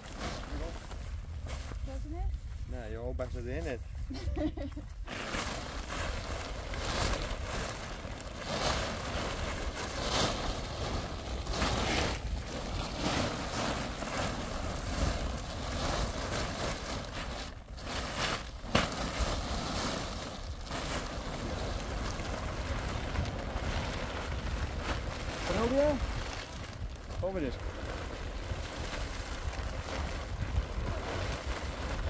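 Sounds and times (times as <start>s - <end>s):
wind buffeting microphone: 20.4s - 32.0s.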